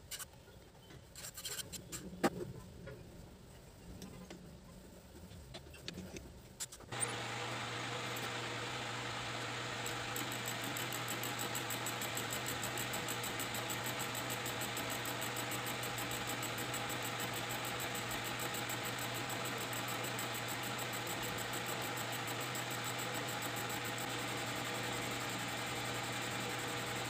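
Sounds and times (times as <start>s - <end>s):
fast regular pulsing hiss: 6.9s - 24.2s
motor hum: 6.9s - 27.0s.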